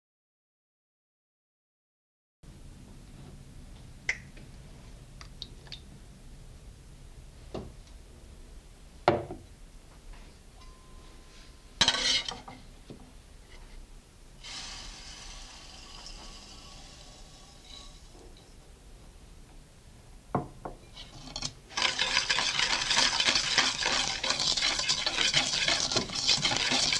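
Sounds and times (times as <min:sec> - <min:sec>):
sugar pouring into bowl: 0:21.7 - 0:26.9.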